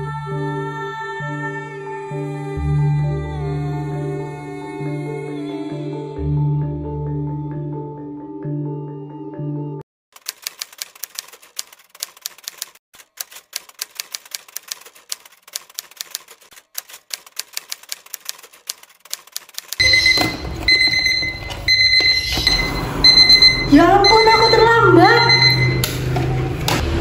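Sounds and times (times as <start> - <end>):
typewriter key clicks: 10.2 - 19.8
digital alarm clock beeping: 19.8 - 25.9.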